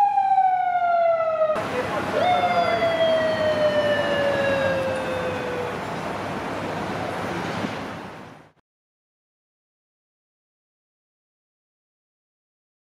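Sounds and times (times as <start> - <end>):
police motorcycle siren: 0.0 - 6.0
city traffic noise: 0.0 - 8.6.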